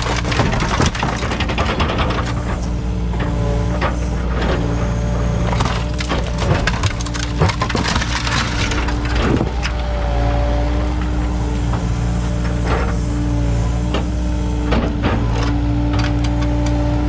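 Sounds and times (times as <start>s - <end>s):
debris cracking and crunching: 0.0s - 10.2s
excavator diesel engine running: 0.0s - 17.0s.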